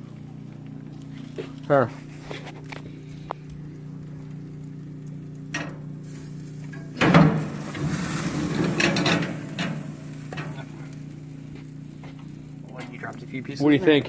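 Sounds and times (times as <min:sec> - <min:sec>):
low hum: 0:00.0 - 0:13.6
clatter on metal grate: 0:08.4 - 0:10.6.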